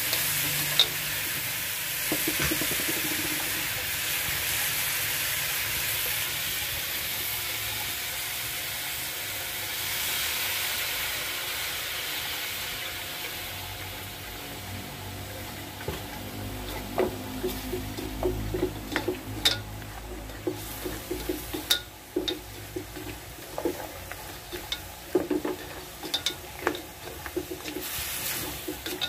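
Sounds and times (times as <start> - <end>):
meat sizzling in a wok: 0.0 - 29.0
metal ladle scraping a wok: 15.8 - 29.0.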